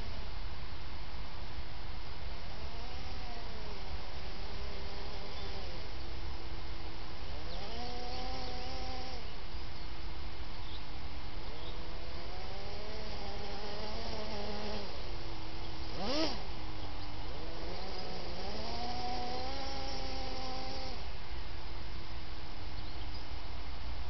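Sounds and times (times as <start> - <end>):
electric motors whining: 2.4 - 6.4, 7.2 - 9.4, 11.7 - 21.1.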